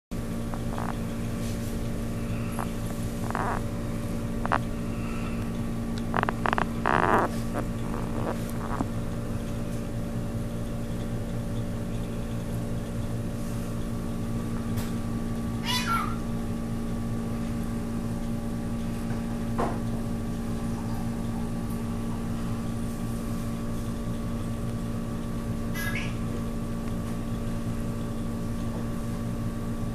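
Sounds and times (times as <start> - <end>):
aquarium pumps humming: 0.2 - 29.9
short animal calls: 25.8 - 26.2.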